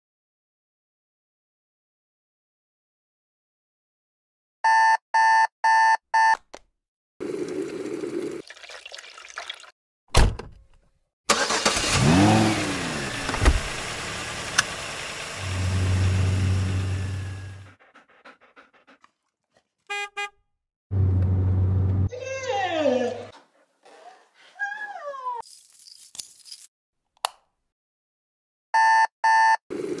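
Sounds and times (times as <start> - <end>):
car horn blasts: 19.9 - 20.4.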